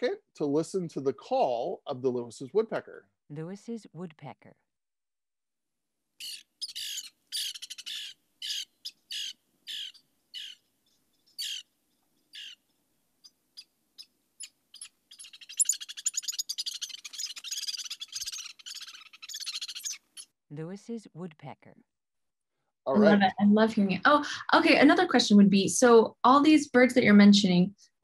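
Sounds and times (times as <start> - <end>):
woodpecker calls: 6.2 - 20.4.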